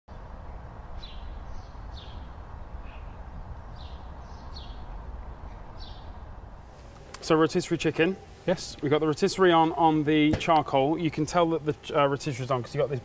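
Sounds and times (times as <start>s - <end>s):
steady low rumble: 0.1s - 7.0s
small bird chirping: 0.9s - 6.2s.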